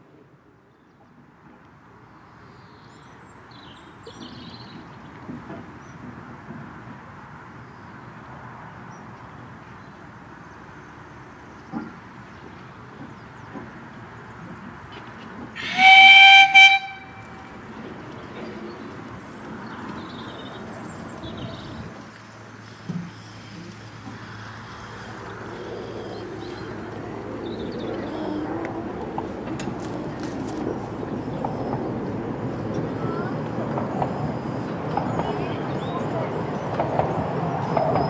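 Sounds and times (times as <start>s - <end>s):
miniature steam train running: 12.7s - 20.7s, 21.3s - 38.0s
steam whistle blast: 15.6s - 17.3s.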